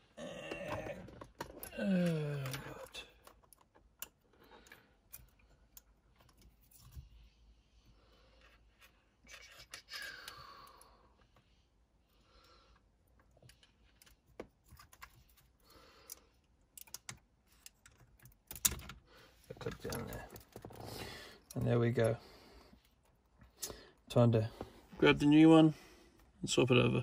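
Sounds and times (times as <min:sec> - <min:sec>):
plastic connectors clicking: 0:16.0 - 0:19.0.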